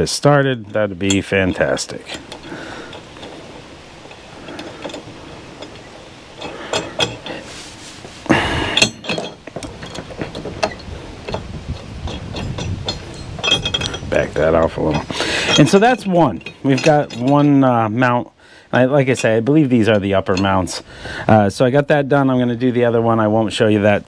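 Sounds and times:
metal scrape: 0.0s - 17.8s
small metal clicks and clinks: 0.4s - 7.4s, 8.7s - 17.6s.

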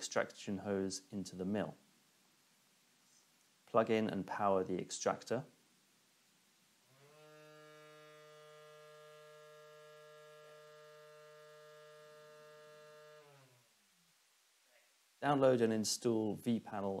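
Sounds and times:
dust extractor buzzing hum: 6.9s - 13.6s.

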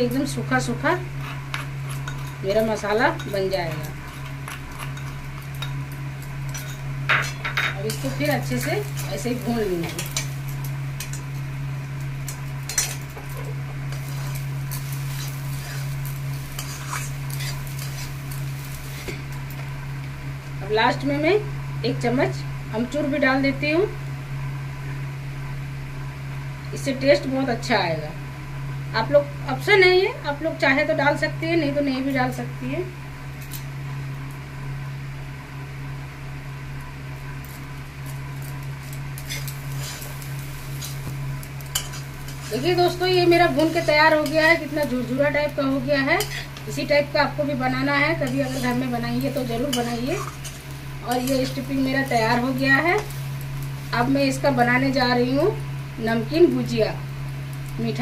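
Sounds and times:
low mechanical hum: 0.0s - 58.0s
metal spatula scraping a pan: 13.9s - 18.2s, 39.2s - 40.2s, 41.7s - 44.6s, 46.1s - 46.6s, 48.2s - 51.7s
spoon scraping metal pan: 15.1s - 18.2s, 46.2s - 46.6s, 48.2s - 48.9s.

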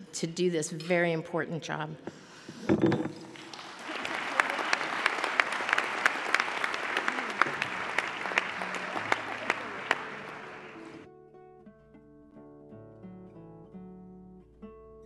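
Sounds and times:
audience applauding: 3.2s - 11.1s
soft guitar music: 9.9s - 15.0s.

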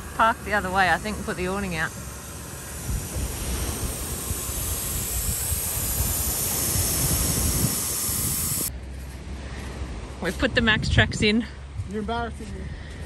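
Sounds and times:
air hissing from tyre valve: 0.0s - 8.7s.

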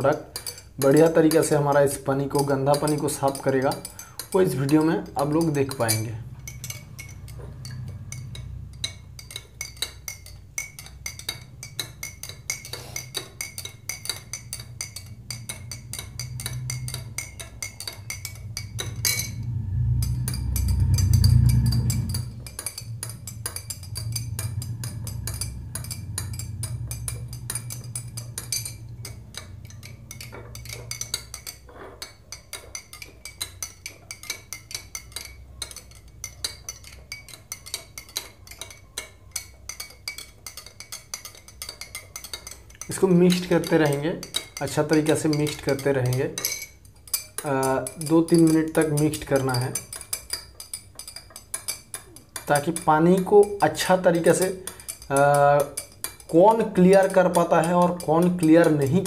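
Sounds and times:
spoons clinking in glasses: 0.0s - 19.4s, 20.2s - 59.0s
low rumble: 14.8s - 31.4s.

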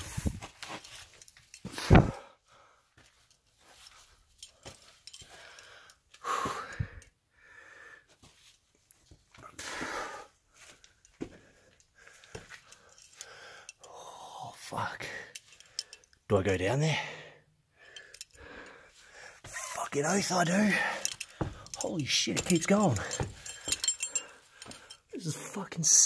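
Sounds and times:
person breathing and grunting: 5.2s - 8.1s, 16.9s - 25.6s.

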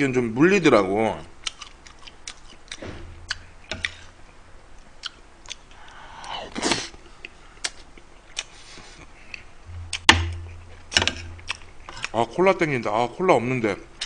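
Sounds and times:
chewing food: 1.4s - 4.1s, 7.2s - 12.2s.

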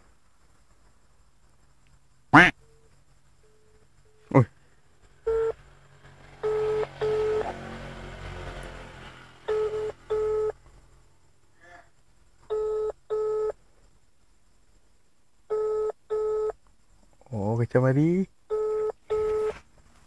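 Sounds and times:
phone ringback tone: 5.3s - 5.6s, 6.4s - 7.5s, 9.5s - 10.6s, 12.5s - 13.6s, 15.5s - 16.6s, 18.5s - 19.6s.

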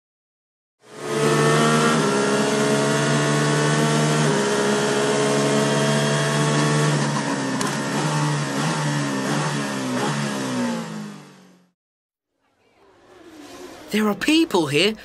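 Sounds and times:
race car engines at high revs: 0.8s - 11.7s.

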